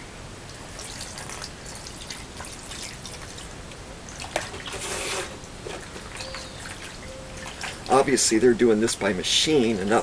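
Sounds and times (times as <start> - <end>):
wet squelches and drips: 0.4 - 4.7, 5.8 - 8.0.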